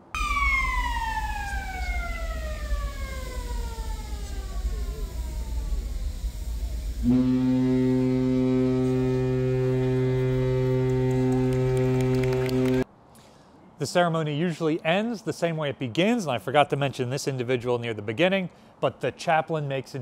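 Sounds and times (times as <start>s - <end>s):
alarm siren winding down: 0.0s - 12.8s
deep ship horn blast: 0.2s - 12.8s.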